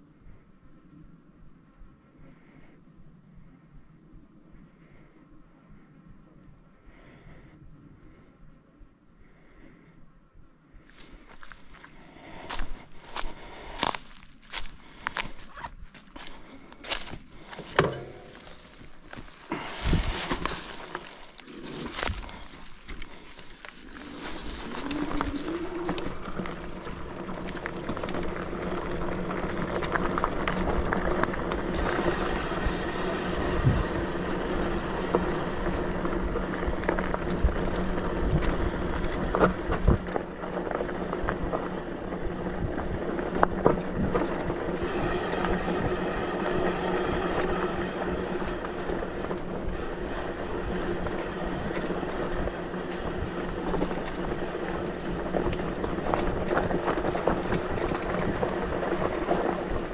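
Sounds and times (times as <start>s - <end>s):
electric bike motor hum: 10.9s - 59.9s
tyre and wind noise: 12.5s - 59.9s
bike knocking and rattling: 13.8s - 59.9s.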